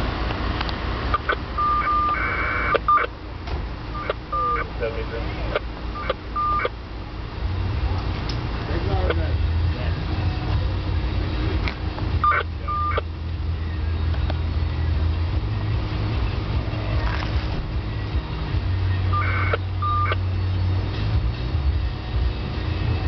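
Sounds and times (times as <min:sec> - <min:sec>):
vehicle rumbling: 0:00.0 - 0:23.0
two-tone electronic beeps: 0:01.1 - 0:03.1, 0:03.9 - 0:04.8, 0:05.5 - 0:06.8, 0:12.2 - 0:13.1, 0:19.1 - 0:20.3.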